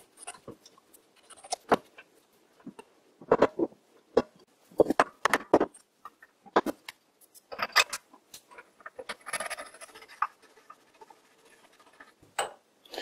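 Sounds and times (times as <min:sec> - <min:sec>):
metal parts clicking and scraping: 0:05.7 - 0:10.3.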